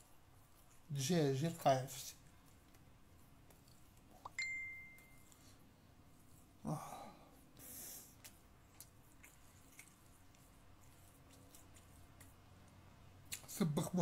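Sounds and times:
short high steady tone: 4.3s - 5.2s
man sighing: 6.6s - 7.2s.

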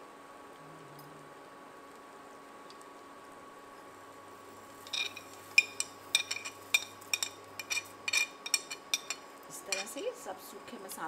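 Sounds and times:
faint steady hum: 0.0s - 11.0s
spoon clinking on ceramic plate: 4.9s - 10.0s.

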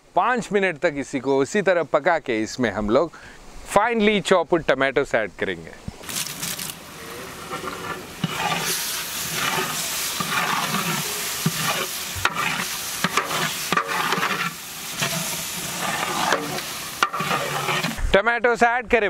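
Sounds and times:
metal ladle scraping pot: 6.0s - 18.0s
tomatoes sizzling in hot oil: 6.0s - 18.0s.

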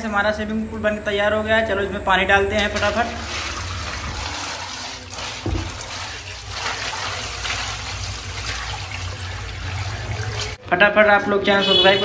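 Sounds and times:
water pouring and splashing: 2.4s - 10.6s.

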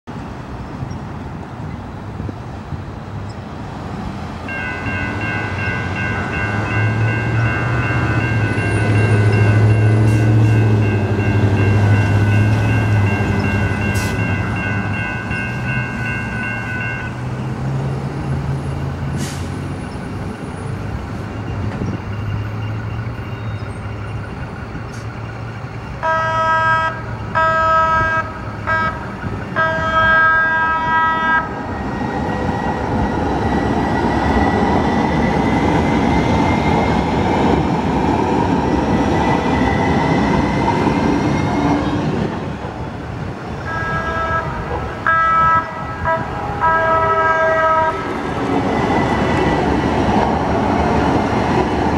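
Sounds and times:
train wheels rumbling: 0.2s - 51.9s
crossing bells ringing: 4.5s - 19.2s, 19.8s - 30.3s
train horn blasts: 26.0s - 31.6s, 43.6s - 48.2s.

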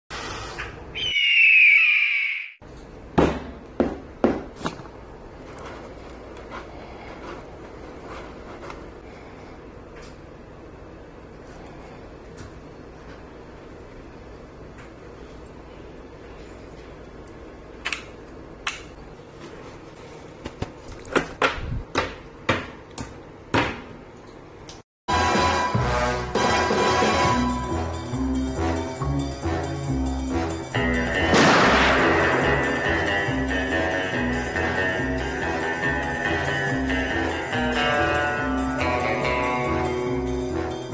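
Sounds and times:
bird of prey screech: 1.0s - 2.6s.

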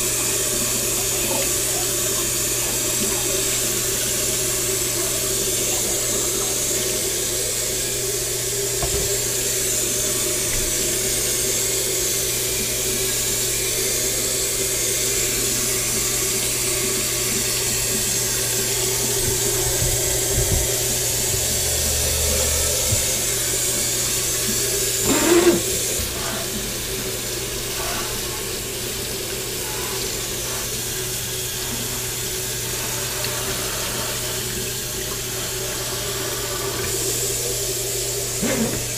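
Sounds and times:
tap water splashing into sink: 8.7s - 9.4s, 22.8s - 32.2s, 33.0s - 37.1s.

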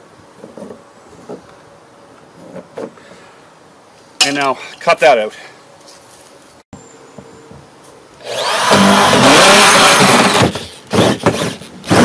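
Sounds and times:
cordless drill boring plastic: 8.2s - 12.0s.

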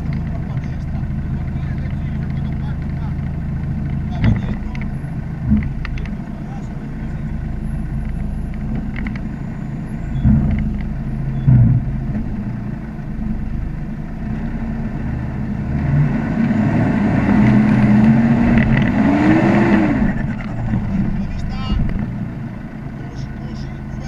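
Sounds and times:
vehicle engine running and revving: 0.0s - 24.0s
dull thumps: 1.8s - 6.3s, 10.1s - 12.6s.

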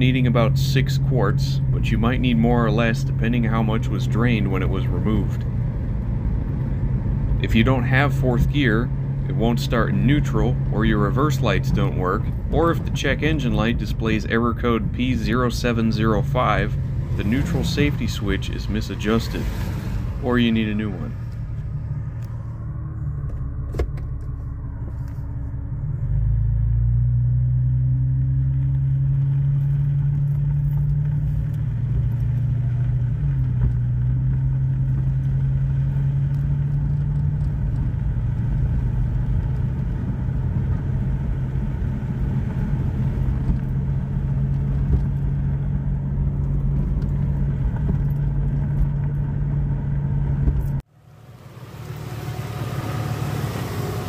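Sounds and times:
transmission upshifting: 0.0s - 35.9s
car engine accelerating: 0.0s - 54.0s.

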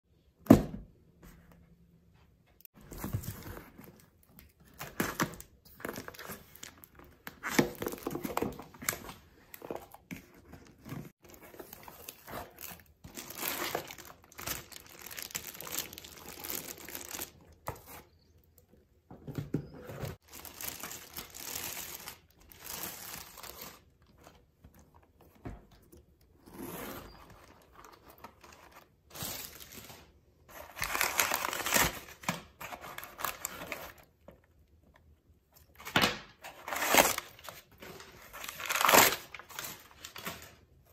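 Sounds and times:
plastic and paper crinkling: 2.8s - 18.1s, 20.2s - 24.4s.

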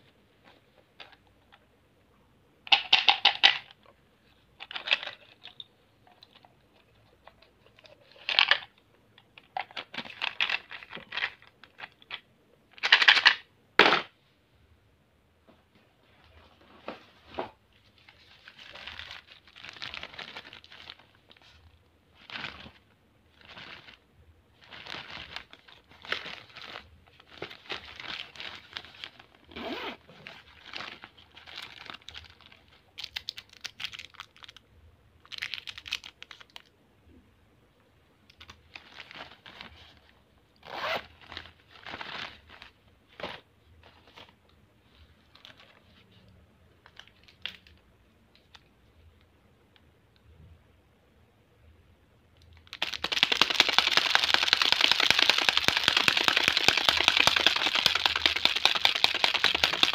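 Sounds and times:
plastic pouch crinkling: 17.9s - 24.0s, 24.6s - 34.6s, 35.2s - 36.7s, 52.5s - 59.9s.

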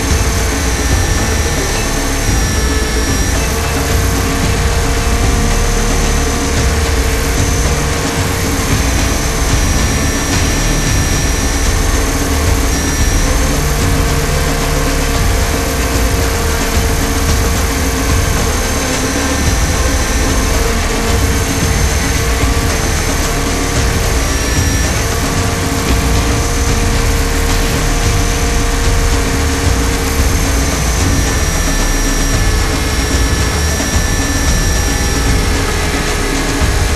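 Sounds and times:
model helicopter rotor hum: 0.0s - 36.9s
thin high whine: 0.0s - 36.9s.

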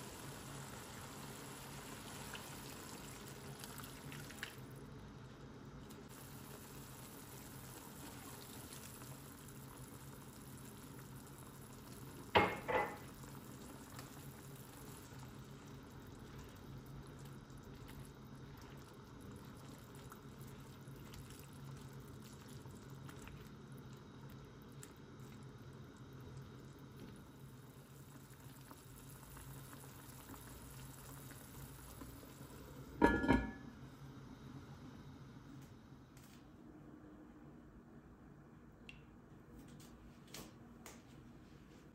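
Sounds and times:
stew bubbling: 1.0s - 33.6s
cast-iron lid clanking onto pot: 33.0s - 33.6s.

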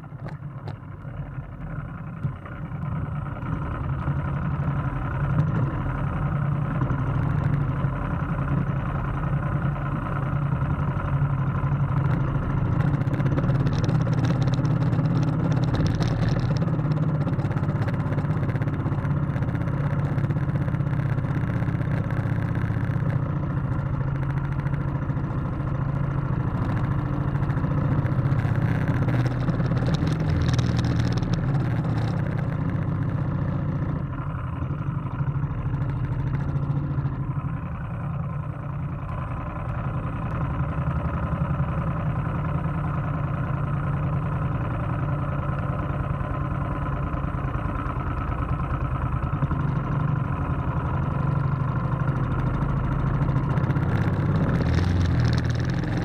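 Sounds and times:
motorboat engine drone: 0.0s - 56.0s.

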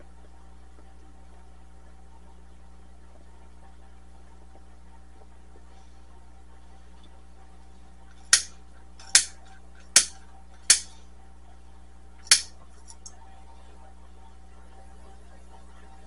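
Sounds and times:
hard objects clacking: 8.4s - 9.4s, 10.0s - 10.9s.

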